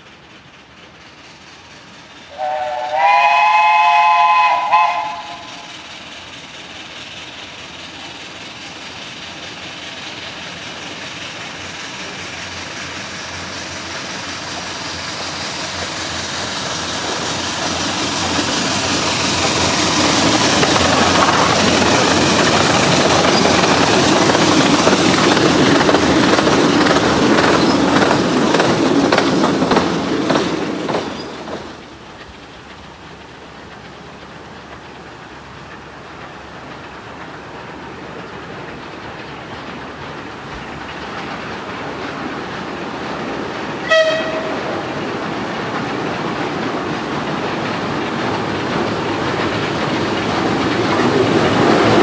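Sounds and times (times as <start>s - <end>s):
steam exhaust: 0.6s - 27.7s
wheels clattering on rails: 4.3s - 52.0s.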